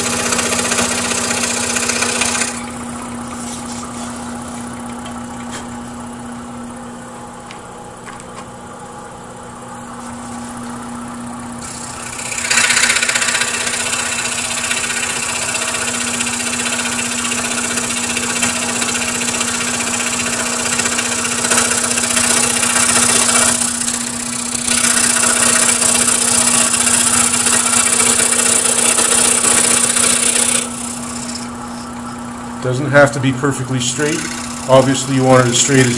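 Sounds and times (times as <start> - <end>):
saw blade rasping through wood: 0.0 - 2.8, 11.6 - 32.0, 33.9 - 35.9
scroll saw motor hum: 0.0 - 6.8, 10.0 - 35.9.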